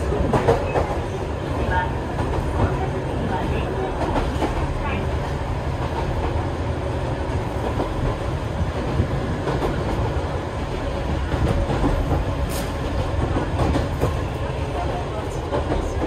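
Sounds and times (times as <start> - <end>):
train wheels rumbling: 0.0 - 16.0.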